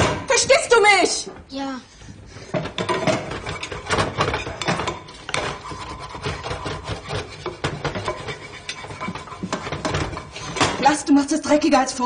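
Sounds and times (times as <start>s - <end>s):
kitchen things clattering: 2.2s - 11.3s
scrubbing and scraping counter: 2.4s - 11.0s.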